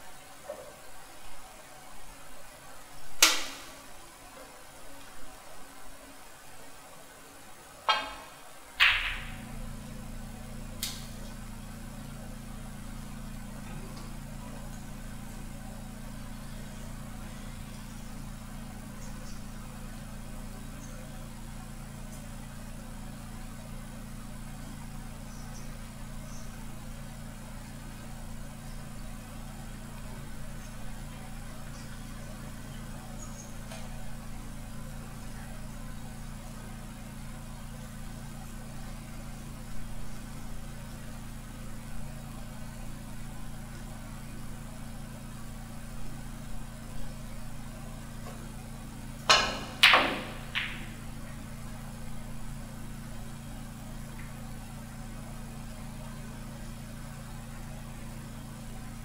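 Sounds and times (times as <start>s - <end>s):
low hum: 7.8s - 59.0s
cue striking snooker ball: 7.9s - 9.6s, 49.3s - 51.0s
snooker balls clicking: 49.3s - 51.0s.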